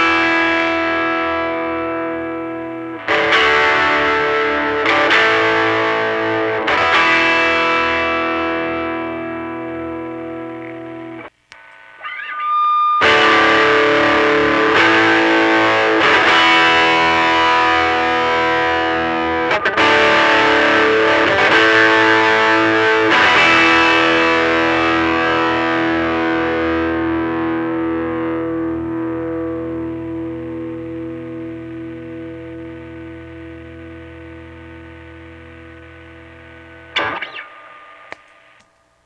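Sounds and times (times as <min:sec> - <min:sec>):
distorted electric guitar chords: 0:00.0 - 0:38.6.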